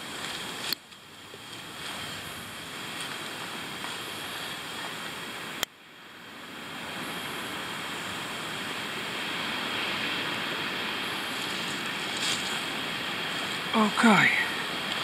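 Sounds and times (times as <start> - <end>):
wind blowing over microphone: 6.3 - 15.0.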